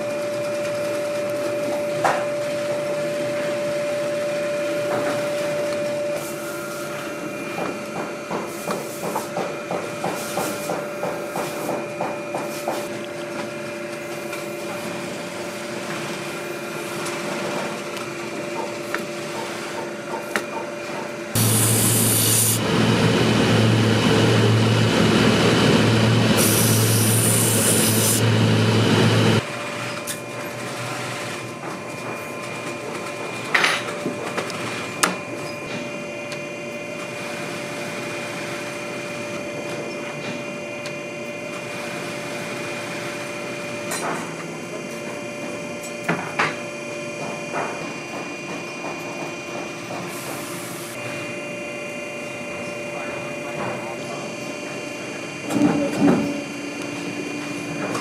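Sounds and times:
workshop hum: 0.0 - 58.0
sanding drum running: 21.2 - 29.8
rasping hiss of leather sanding: 21.4 - 22.7, 26.4 - 28.2.

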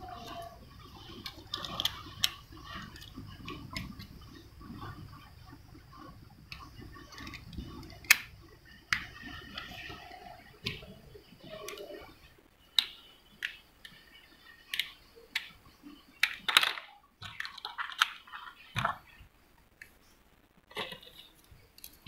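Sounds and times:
plastic clicks and snaps: 6.5 - 8.3, 12.7 - 14.0, 14.6 - 15.6, 16.2 - 19.0.

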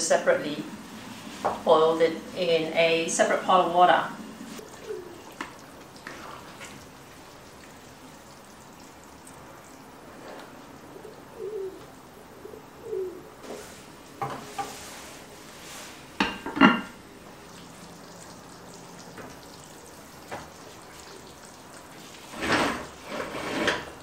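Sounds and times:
spatula scraping a pan: 22.2 - 24.0.

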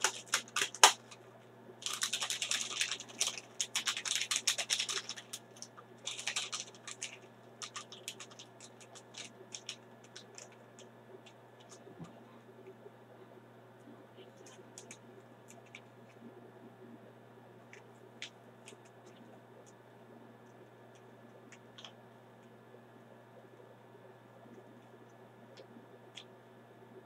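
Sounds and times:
plastic sachet crinkling: 0.0 - 1.2, 1.8 - 10.6.

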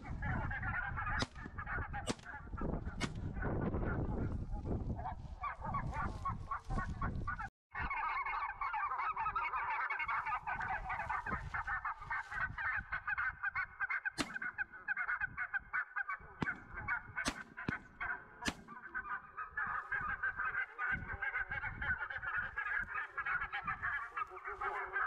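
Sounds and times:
wind rumble on microphone: 0.0 - 8.0, 10.2 - 13.8, 19.6 - 24.8
geese honking: 0.0 - 25.0.

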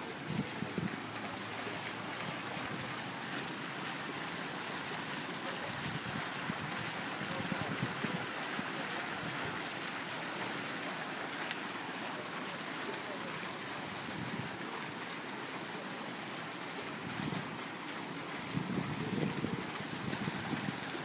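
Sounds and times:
wind buffeting microphone: 0.0 - 3.9, 5.6 - 8.4, 18.3 - 21.0
lake water rushing: 0.0 - 21.0.

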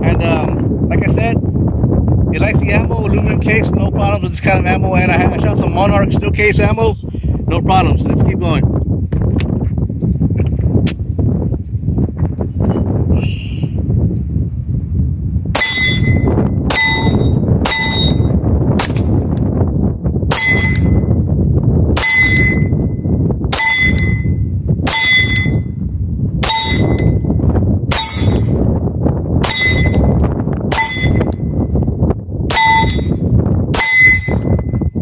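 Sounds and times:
wind on microphone: 0.0 - 35.0
steel plate clanging: 15.6 - 18.4, 20.3 - 21.1, 22.0 - 22.8, 23.6 - 25.7, 26.4 - 27.2, 27.9 - 28.7, 29.4 - 31.4, 32.5 - 34.6.

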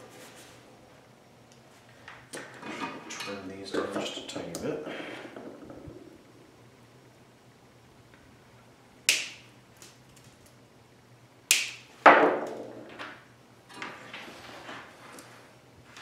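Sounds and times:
items knocking on wooden workbench: 12.0 - 13.2.

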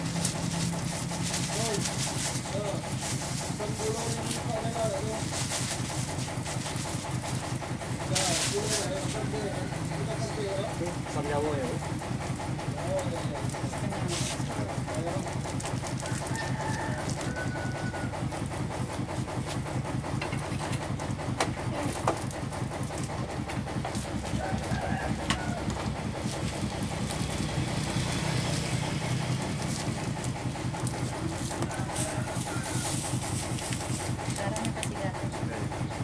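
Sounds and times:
engine throbbing steadily: 0.0 - 36.0
chicken calls: 16.0 - 18.6, 24.2 - 26.0, 30.7 - 33.3.

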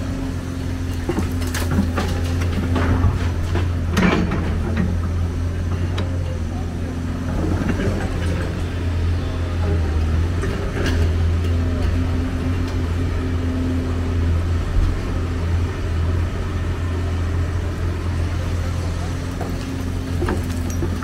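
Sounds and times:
excavator diesel engine droning: 0.0 - 21.0
clatter of metal or rubble: 19.4 - 21.0.

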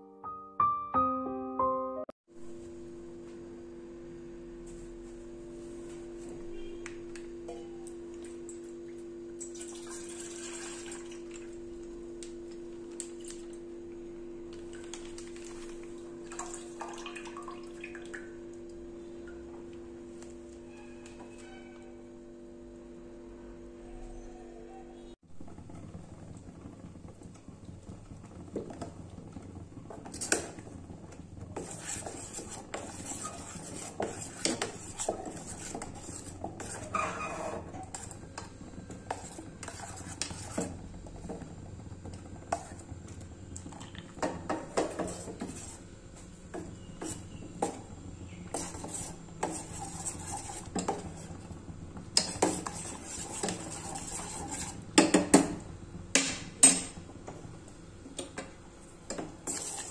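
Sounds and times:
spoon scraping a metal saucepan: 31.6 - 38.2, 38.9 - 40.8, 46.5 - 47.8, 48.4 - 51.3, 52.2 - 54.8, 59.1 - 59.9.

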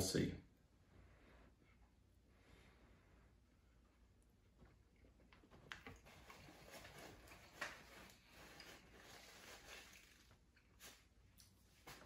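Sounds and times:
foil pouch rustling: 6.0 - 11.2
spoon in foil pouch: 6.3 - 11.0.

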